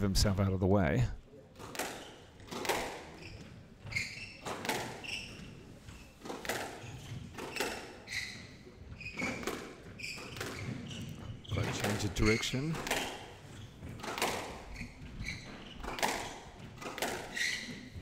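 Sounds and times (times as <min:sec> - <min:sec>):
squash ball striking rackets and walls: 0:01.5 - 0:18.0
shoes squeaking on wooden floor: 0:01.6 - 0:18.0.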